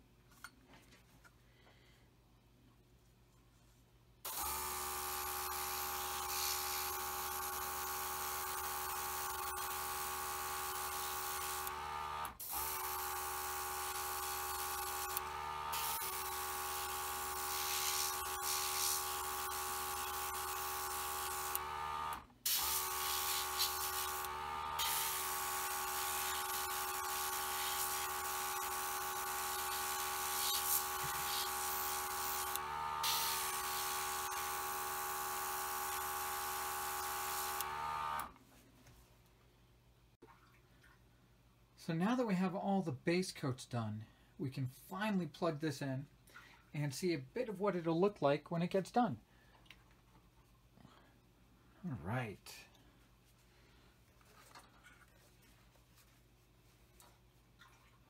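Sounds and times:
compressor motor running: 4.3 - 38.4
airbrush air hissing: 15.8 - 21.6, 22.5 - 35.0.

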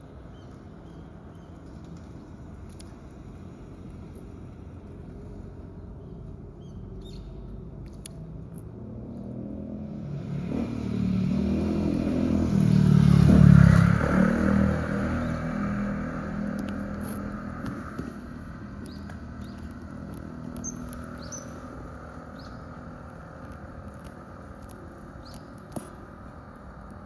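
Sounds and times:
vehicle engine passing: 8.8 - 25.0.

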